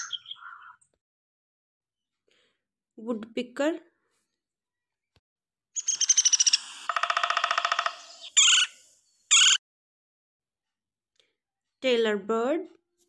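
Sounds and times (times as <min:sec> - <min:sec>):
woodpecker calling: 0:00.0 - 0:00.8, 0:05.8 - 0:09.6.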